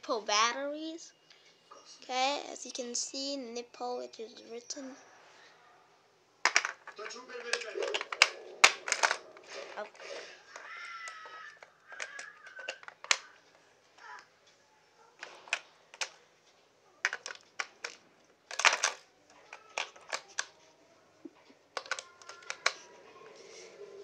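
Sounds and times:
batteries clicking into plastic tray: 6.4 - 9.5, 10.5 - 13.4, 15.2 - 16.2, 17.0 - 20.6, 21.7 - 22.9.

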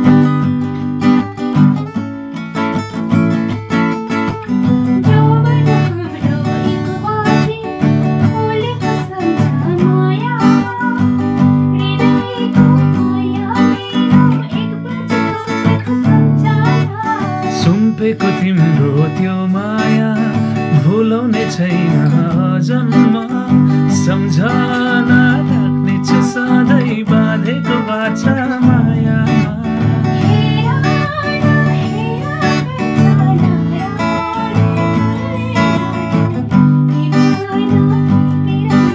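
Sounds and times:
acoustic guitar strumming: 0.0 - 38.9
man singing: 17.4 - 31.8.

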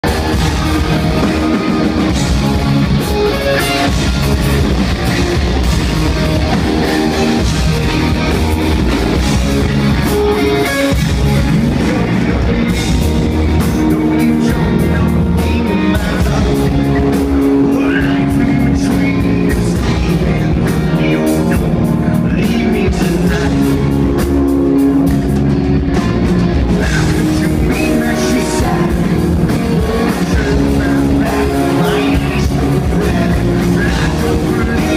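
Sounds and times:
bass guitar: 0.0 - 34.9
drum kit: 0.0 - 34.9
electric guitar: 0.0 - 34.9
man singing into a microphone: 11.5 - 24.2, 26.7 - 34.9.

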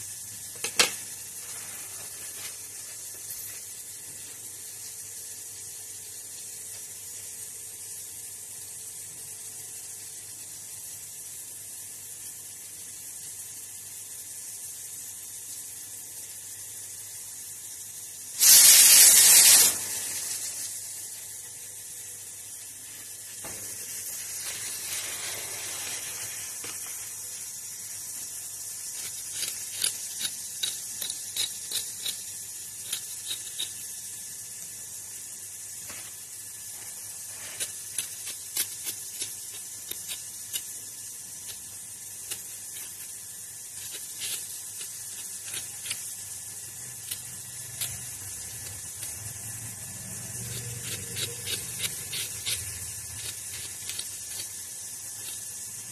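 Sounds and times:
steady hiss: 0.0 - 55.9
blade scraping vegetable peel: 18.4 - 20.0, 28.9 - 33.8, 37.2 - 40.8, 41.4 - 55.9.

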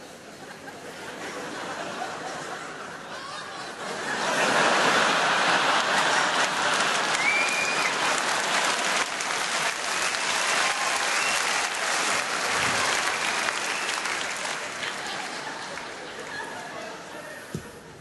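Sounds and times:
audience laughing: 0.4 - 9.0, 12.8 - 17.6
audience applauding: 4.4 - 16.8.

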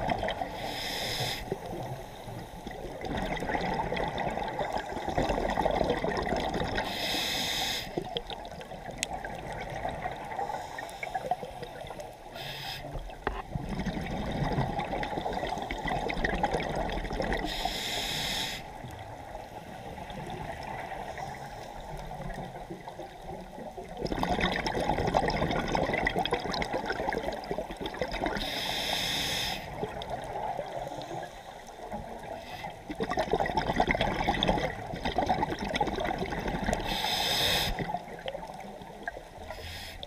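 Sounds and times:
exhaled air bubbling: 0.0 - 28.6, 29.6 - 40.0
regulator hissing inhale: 0.5 - 2.7, 6.8 - 8.1, 10.4 - 13.0, 17.4 - 18.8, 28.4 - 29.8, 31.0 - 32.9, 36.8 - 38.0, 39.4 - 40.0.

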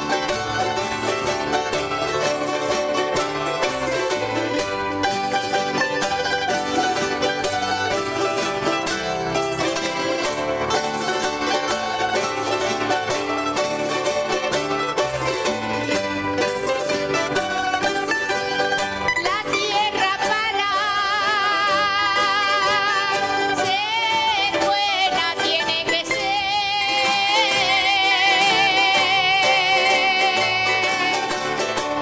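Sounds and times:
plucked banjo-like strings: 0.0 - 32.0
person singing with vibrato: 19.0 - 32.0.

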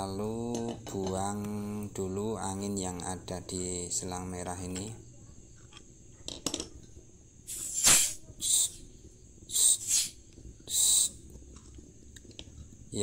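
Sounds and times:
gas hissing from hose: 7.4 - 8.9, 9.5 - 11.2.

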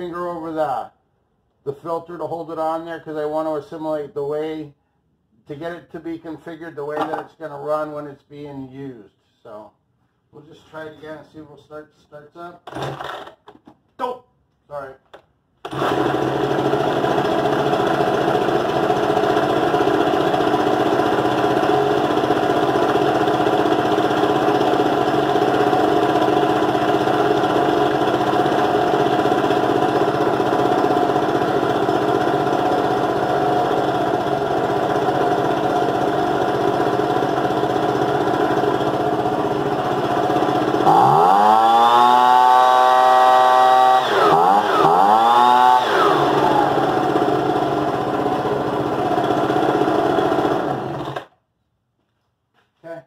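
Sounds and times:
leaf blower engine running: 15.6 - 51.3.

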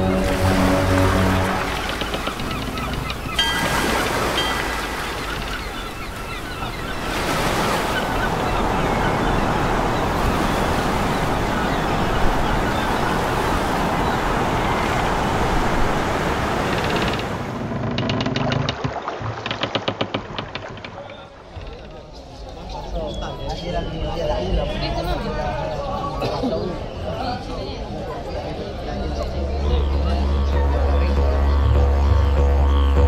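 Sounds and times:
sea waves and surf: 0.0 - 21.7.

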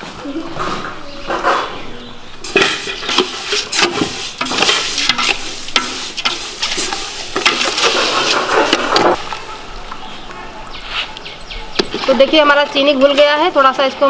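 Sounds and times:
metal ladle scraping a metal pot: 0.6 - 9.4.

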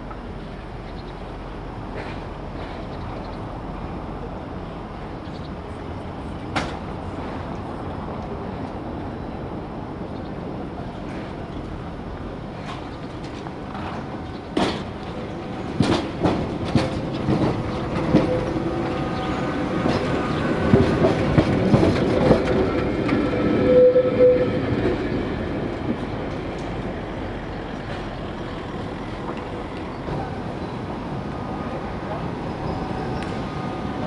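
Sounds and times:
tram rumble: 0.0 - 34.0
tram wheels clicking over rail joints: 10.2 - 34.0.

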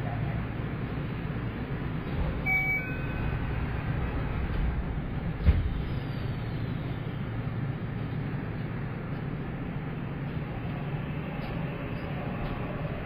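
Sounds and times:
train rumbling: 0.0 - 13.0
high chime tone: 2.4 - 3.4.

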